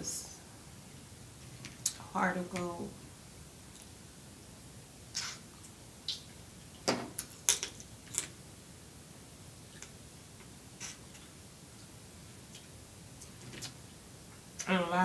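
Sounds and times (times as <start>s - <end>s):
wet mouth smacks: 5.1s - 5.4s.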